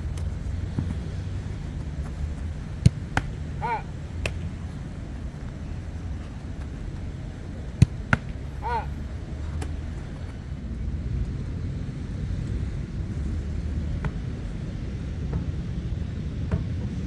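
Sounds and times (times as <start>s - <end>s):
football thumps: 0.2s - 3.4s, 7.7s - 8.4s
short voice-like call: 3.6s - 3.9s, 8.6s - 8.9s.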